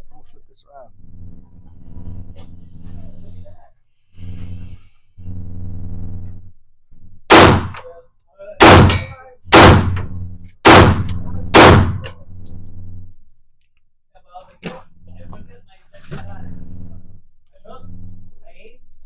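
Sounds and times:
low steady hum: 0:00.0 - 0:13.6, 0:14.2 - 0:19.0
handgun shots echoing: 0:08.6 - 0:10.1, 0:10.7 - 0:12.2.

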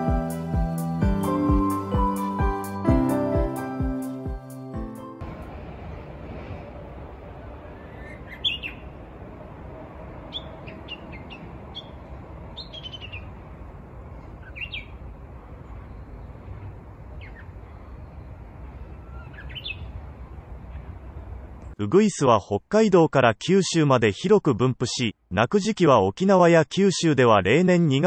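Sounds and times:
steady low rumble: 0:05.2 - 0:21.8
bush warbler calling: 0:07.8 - 0:09.0, 0:10.3 - 0:13.4, 0:14.2 - 0:15.1, 0:15.7 - 0:18.2, 0:18.8 - 0:20.0.

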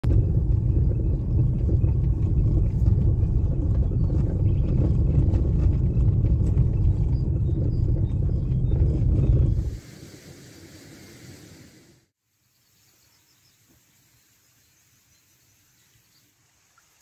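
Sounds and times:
vehicle rumbling on dirt track: 0:00.0 - 0:09.7.

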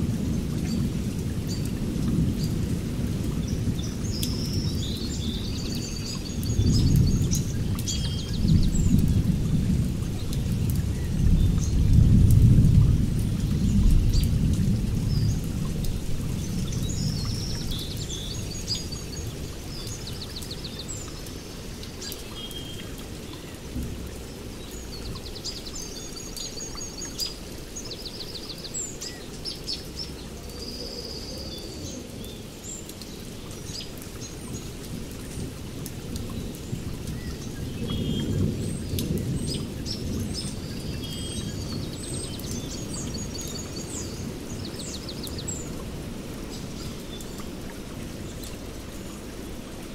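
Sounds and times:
rain rumble: 0:00.0 - 0:49.9
birds chirping and trilling: 0:36.3 - 0:45.8.

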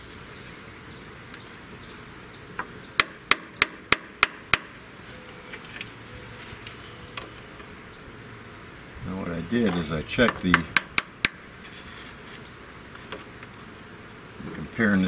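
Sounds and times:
hand tool tapping on metal bracket: 0:09.6 - 0:11.4.

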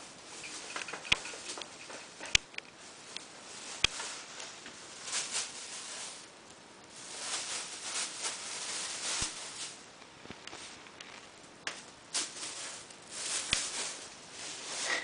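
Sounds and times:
plastic bag crinkling: 0:00.2 - 0:15.0.

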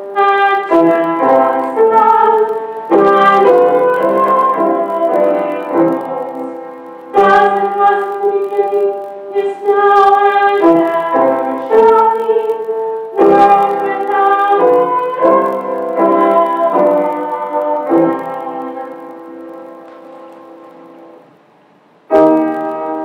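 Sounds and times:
church organ chords: 0:00.0 - 0:21.2.

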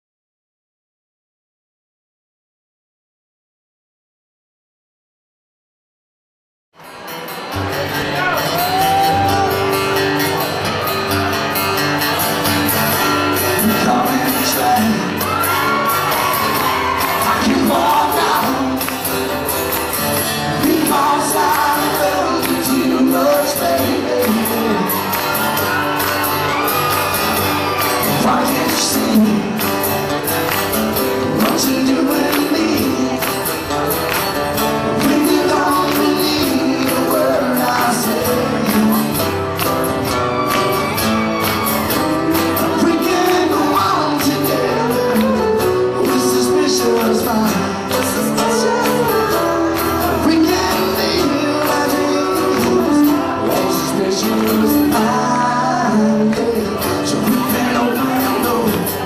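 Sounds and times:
acoustic guitars strumming: 0:06.8 - 0:59.0
man singing country song: 0:11.3 - 0:39.7, 0:41.9 - 0:59.0.

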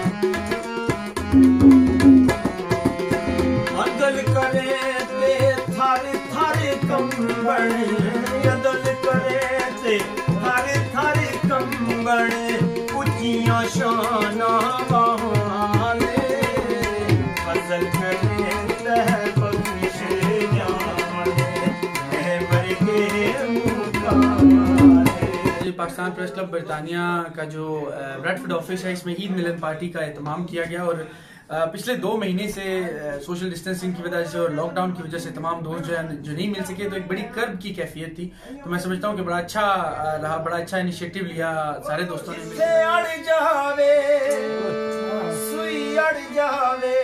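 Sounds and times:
harmonium droning chords: 0:00.0 - 0:25.7, 0:42.3 - 0:47.0
tabla playing rhythm: 0:00.0 - 0:25.8
man singing: 0:03.4 - 0:26.7, 0:41.2 - 0:47.0.

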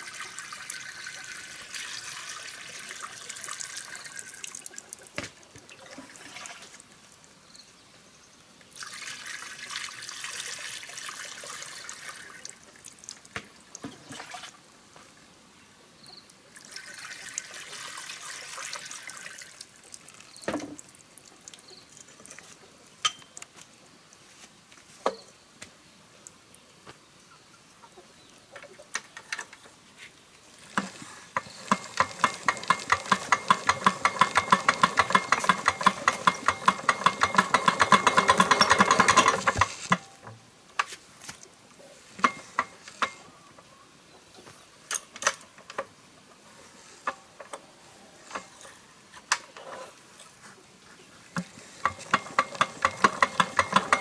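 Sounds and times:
fast metallic clicking: 0:30.8 - 0:40.1, 0:51.8 - 0:54.0.

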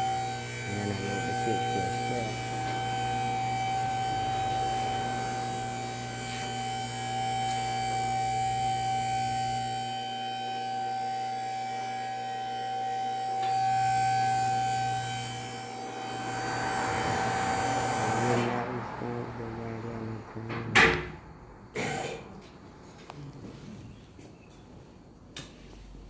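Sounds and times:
low hum: 0:00.0 - 0:09.6, 0:13.4 - 0:23.9
high-pitched machine whine: 0:00.0 - 0:23.0.

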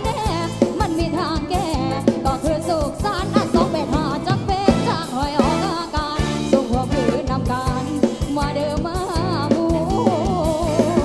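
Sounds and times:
drums keeping a steady beat: 0:00.0 - 0:11.0
sustained bass: 0:00.0 - 0:11.0
wavering lead melody: 0:01.0 - 0:08.1.

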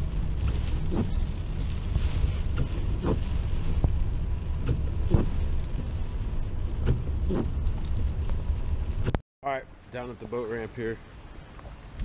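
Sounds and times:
windshield wipers swishing: 0:00.0 - 0:09.2
car engine and road rumble: 0:00.0 - 0:12.0.

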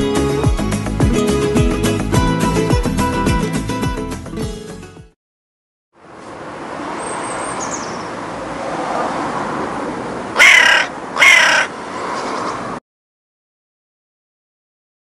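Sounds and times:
faint high chirp: 0:07.0 - 0:08.1
crow cawing: 0:10.4 - 0:11.8.

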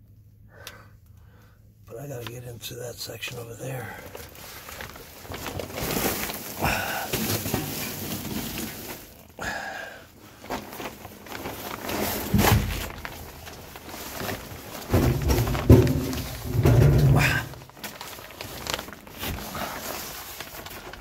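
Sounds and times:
rustling of plastic sheeting: 0:01.9 - 0:21.0
heavy thump: 0:14.9 - 0:17.5.

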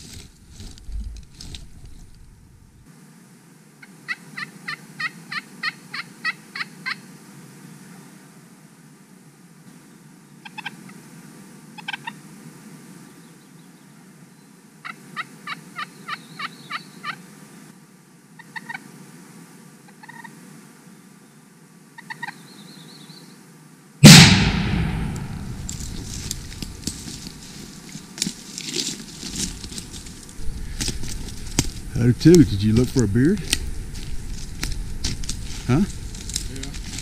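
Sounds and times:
shotgun blast: 0:24.0 - 0:26.8.

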